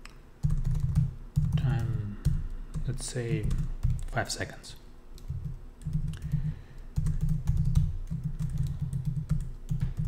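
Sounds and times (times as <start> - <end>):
typing on computer keyboard: 0.4 - 2.4, 5.2 - 10.0.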